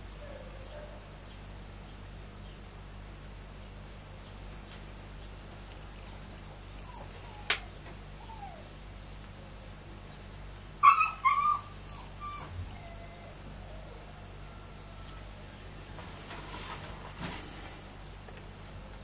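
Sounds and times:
faint chirps and squeaks: 6.0 - 8.8, 9.4 - 15.3.

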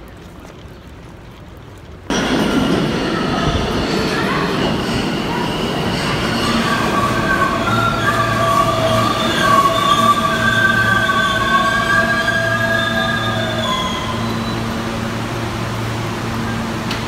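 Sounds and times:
train wheels squealing: 2.1 - 15.2.

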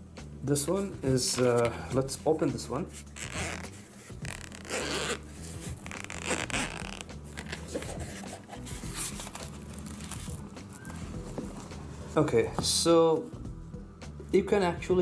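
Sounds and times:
zipper being pulled: 3.0 - 12.0.

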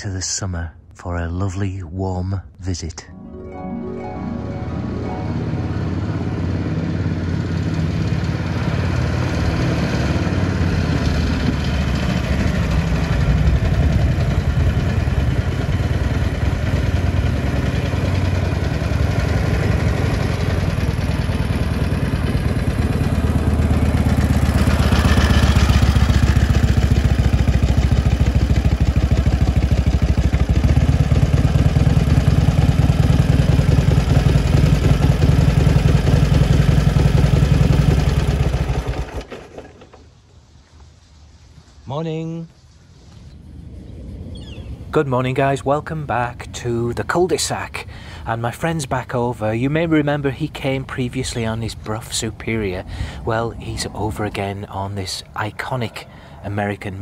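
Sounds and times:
motorcycle engine running: 7.2 - 39.3.

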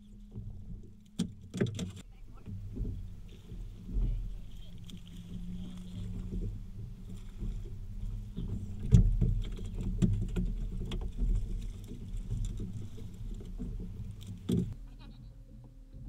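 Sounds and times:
low rumble: 0.0 - 16.0
waves lapping against boat hull: 0.0 - 16.0.

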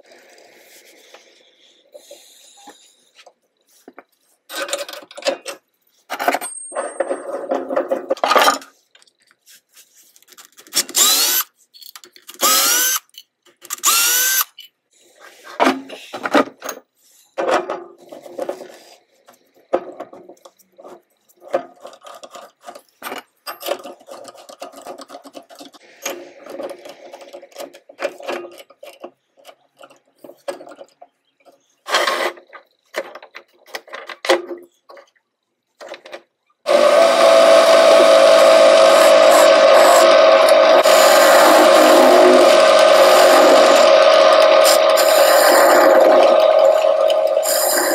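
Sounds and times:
metal parts clicking and rattling: 10.1 - 11.0, 11.6 - 12.4, 20.2 - 31.1
cordless drill whining: 10.8 - 11.5, 12.4 - 13.0, 13.8 - 14.5, 36.7 - 47.9.

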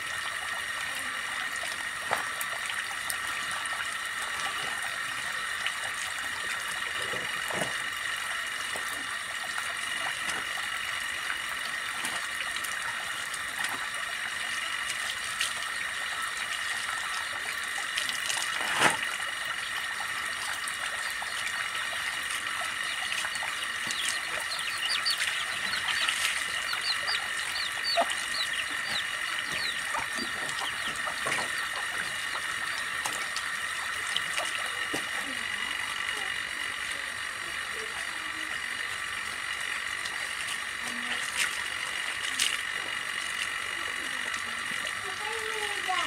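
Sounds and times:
water splashing: 14.8 - 35.4
birds chirping: 22.8 - 33.0
high-pitched drone: 22.8 - 33.2.

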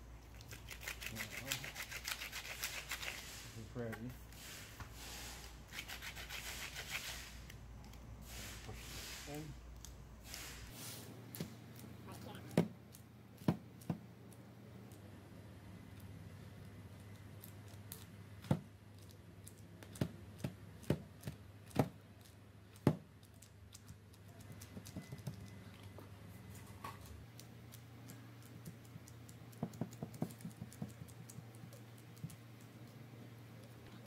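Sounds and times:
taps of hands working clay: 12.5 - 14.1, 19.5 - 23.1, 28.1 - 33.0.

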